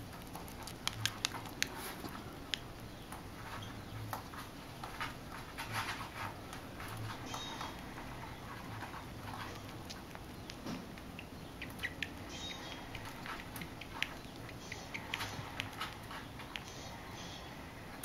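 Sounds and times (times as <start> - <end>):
rabbit kit suckling clicks: 0.1 - 3.2, 9.4 - 17.0.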